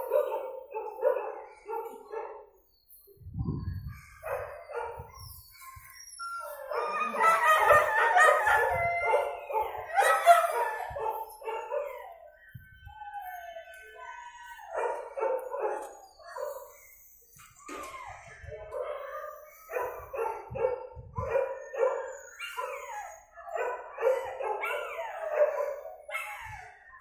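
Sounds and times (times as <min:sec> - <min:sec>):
dogs barking: 0:00.0 - 0:02.6, 0:04.0 - 0:12.3, 0:14.7 - 0:16.8, 0:18.7 - 0:26.8.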